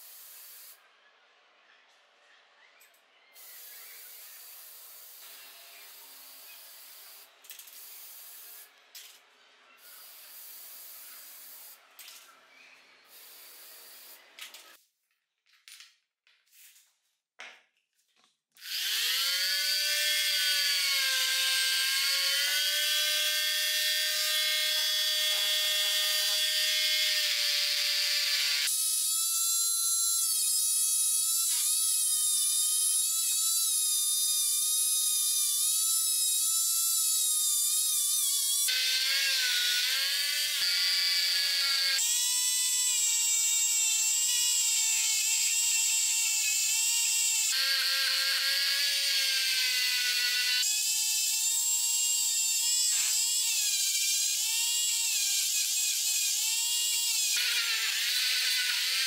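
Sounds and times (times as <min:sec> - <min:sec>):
electric rotary tool whining: 0:03.4 - 0:07.4, 0:18.6 - 0:59.0.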